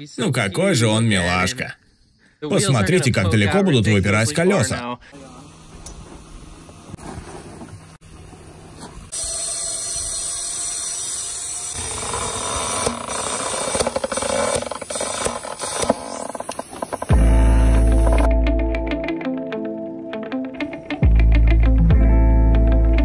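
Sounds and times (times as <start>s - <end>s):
air hissing from tyre valve: 9.1s - 18.3s.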